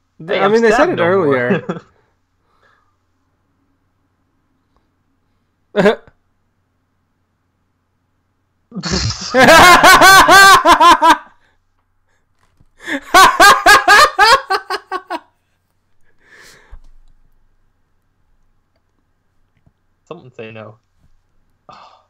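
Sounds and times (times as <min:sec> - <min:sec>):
person laughing hard: 0:08.8 - 0:11.3, 0:12.8 - 0:15.2.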